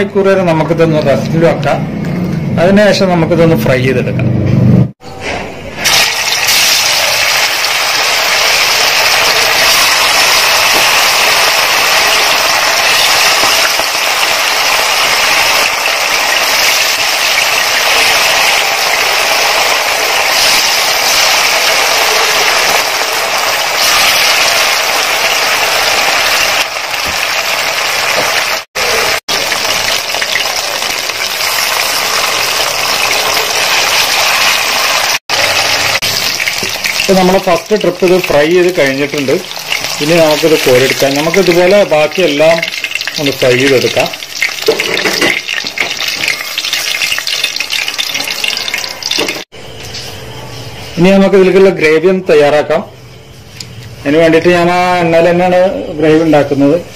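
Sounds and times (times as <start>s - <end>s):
chicken deep-frying in oil: 5.8s - 50.2s.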